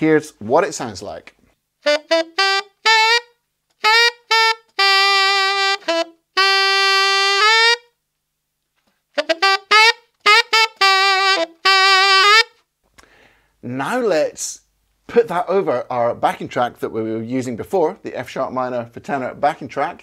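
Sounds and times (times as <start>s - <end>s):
tenor saxophone blues lick: 0.0s - 8.0s, 9.1s - 13.2s.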